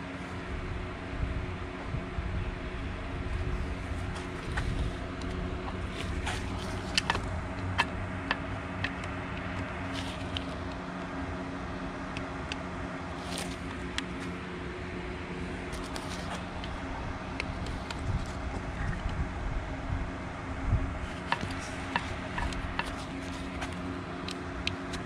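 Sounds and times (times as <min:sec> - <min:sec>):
steady background hum: 0:00.0 - 0:25.0
sharp metallic clicks and taps: 0:06.6 - 0:10.8.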